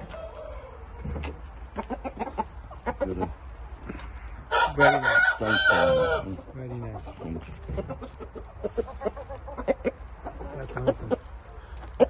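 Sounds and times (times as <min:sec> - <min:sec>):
rooster clucking: 0:00.0 - 0:12.0
rooster crowing: 0:04.5 - 0:06.3.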